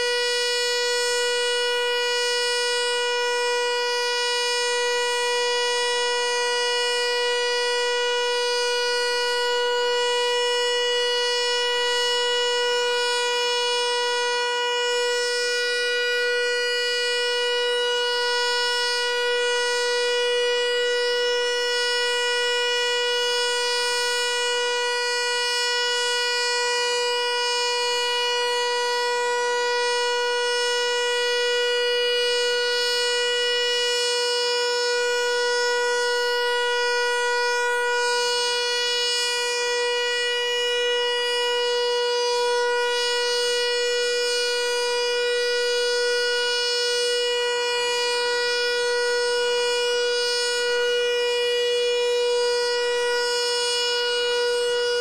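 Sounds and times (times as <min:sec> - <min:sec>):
warning siren steady tone: 0:00.0 - 0:55.0.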